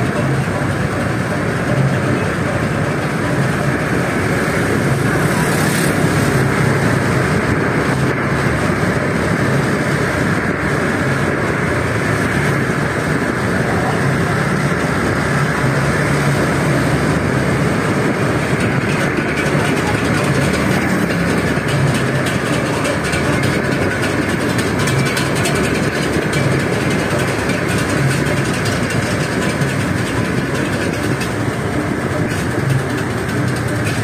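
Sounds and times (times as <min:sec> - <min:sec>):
scooter engines humming: 0:00.0 - 0:34.0
wind and road rush: 0:00.0 - 0:34.0.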